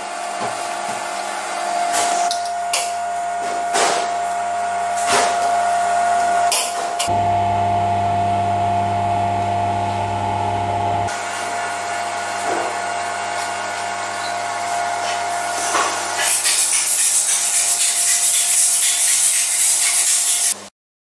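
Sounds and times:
steady hum: 2.4s - 16.2s.

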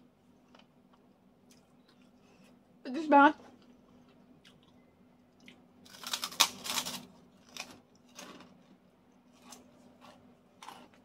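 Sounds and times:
faint steady hum: 0.0s - 11.0s
crackers being crunched: 5.4s - 11.0s.

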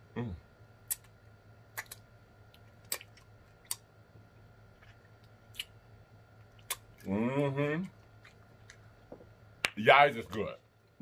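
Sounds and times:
wet lip smacks: 1.7s - 2.0s.

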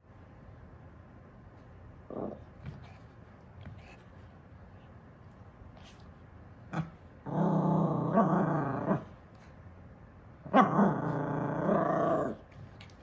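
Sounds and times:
small dog growling: 2.1s - 2.5s, 6.7s - 9.1s, 10.5s - 12.5s.

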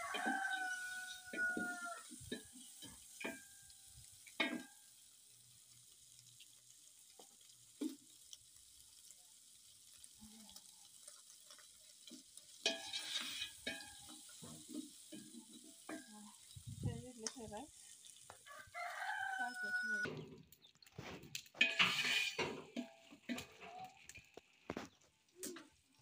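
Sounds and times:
rooster crowing: 0.0s - 2.1s, 18.4s - 20.1s
food sizzling: 0.0s - 26.0s
spoon scraping metal pot: 12.1s - 16.5s, 21.5s - 23.7s.

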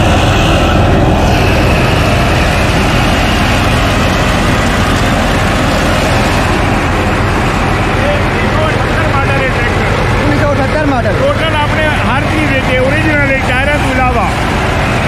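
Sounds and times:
tractor engine driving thresher: 0.0s - 15.0s.

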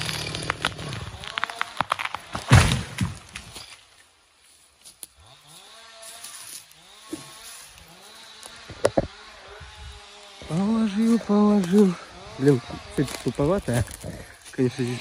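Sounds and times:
chainsaw revving: 0.0s - 1.8s, 5.1s - 15.0s.

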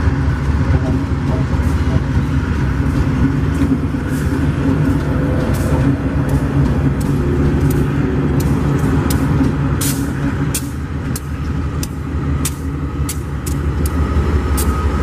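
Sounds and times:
diesel locomotive engines droning: 0.0s - 15.0s.

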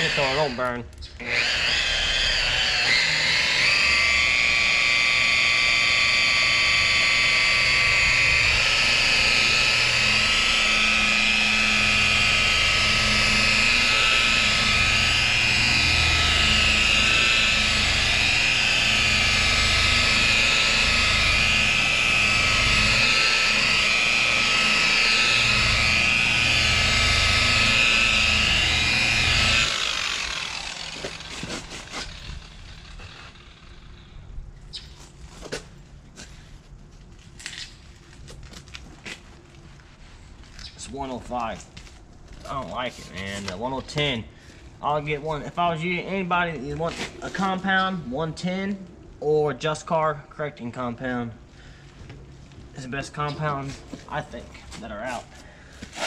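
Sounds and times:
polisher spinning down: 0.0s - 34.1s
rotary polisher whining: 0.0s - 34.3s, 52.1s - 56.0s.

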